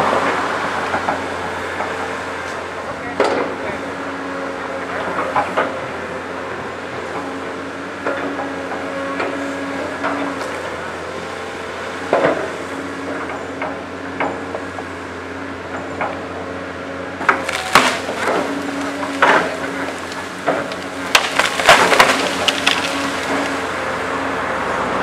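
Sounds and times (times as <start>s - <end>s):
excavator diesel engine humming: 0.0s - 25.0s
wood cracking and snapping: 17.2s - 23.8s.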